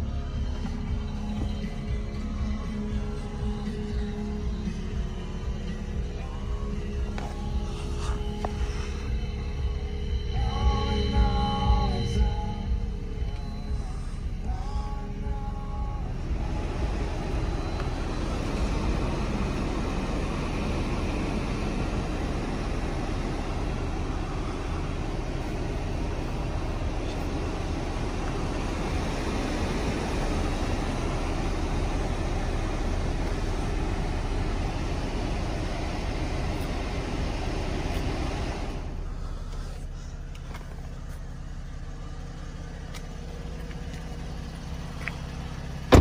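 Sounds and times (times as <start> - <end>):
radio music: 0.0 - 37.0
car interior road and engine noise: 0.0 - 46.0.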